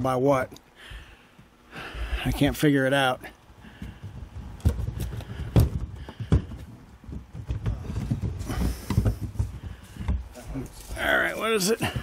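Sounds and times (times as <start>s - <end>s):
knocks and rubbing on plastic trim: 3.8s - 10.9s.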